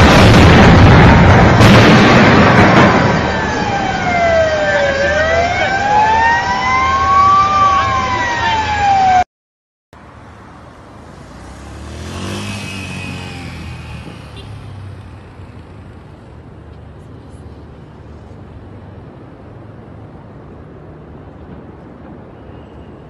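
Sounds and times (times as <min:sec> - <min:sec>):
explosion noise: 0:00.0 - 0:05.7
emergency siren wailing: 0:00.9 - 0:09.3
faint street noise: 0:02.9 - 0:09.2, 0:10.0 - 0:23.0.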